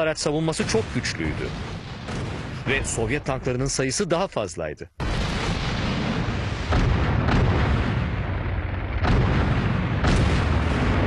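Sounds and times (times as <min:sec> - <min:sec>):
shell explosions: 0:00.5 - 0:03.5, 0:05.0 - 0:11.0
tank gunfire: 0:00.6 - 0:02.8, 0:05.0 - 0:11.0
continuous low rumble: 0:06.6 - 0:11.0.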